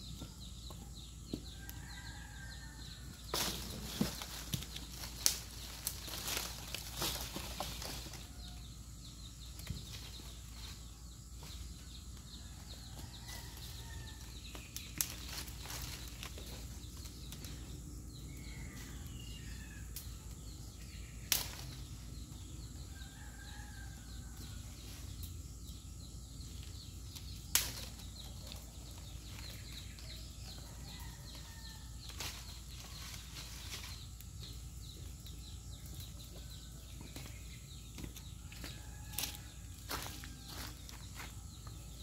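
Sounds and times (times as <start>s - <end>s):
leafy branches rustling: 3.2s - 8.6s, 13.2s - 17.6s, 21.3s - 21.8s, 27.5s - 30.1s, 32.1s - 34.4s.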